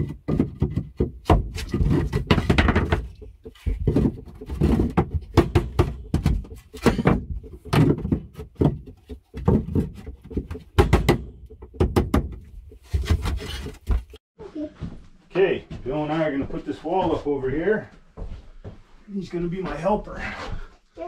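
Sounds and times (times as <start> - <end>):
wooden boards knocking: 0.0 - 14.2.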